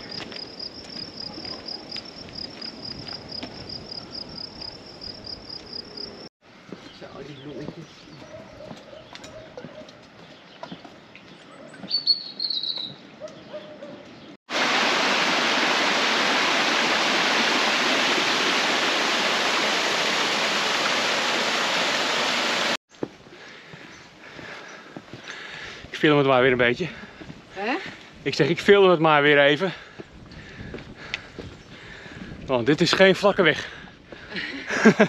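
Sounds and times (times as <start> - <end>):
bird chirp: 6.8 - 14.4
waterfall rushing: 14.5 - 22.8.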